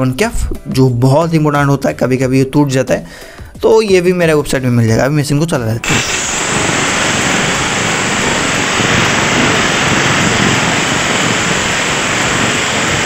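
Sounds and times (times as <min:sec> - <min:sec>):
marble cutter running: 0:05.8 - 0:13.0.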